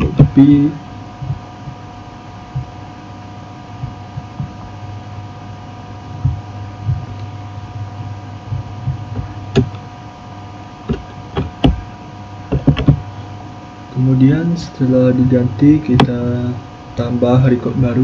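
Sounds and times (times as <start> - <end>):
soft low thumps: 0.0 - 2.9, 3.7 - 4.9, 6.0 - 9.9, 10.8 - 13.1
electrical hum: 0.0 - 18.0.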